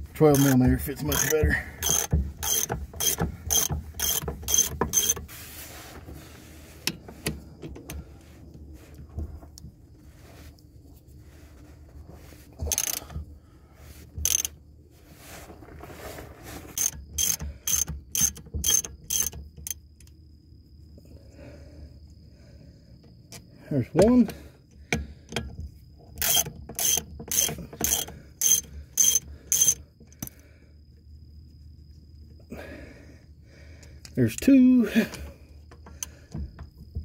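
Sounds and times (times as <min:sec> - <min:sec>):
hand ratchet clicking: 0:00.3 - 0:05.2, 0:12.6 - 0:13.2, 0:14.2 - 0:14.6, 0:16.8 - 0:20.1, 0:26.2 - 0:30.4.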